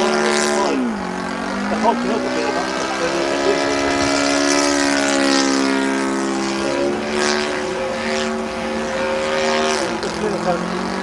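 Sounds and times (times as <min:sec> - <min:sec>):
model plane engine buzzing: 0:00.0 - 0:11.0.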